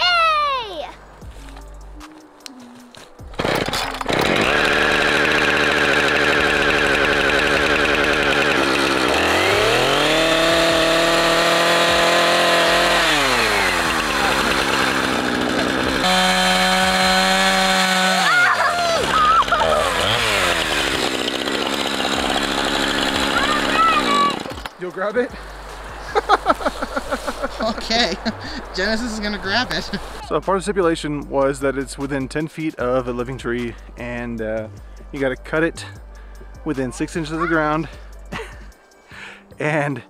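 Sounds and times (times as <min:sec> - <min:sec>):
chainsaw revving and cutting: 0:03.3 - 0:24.8.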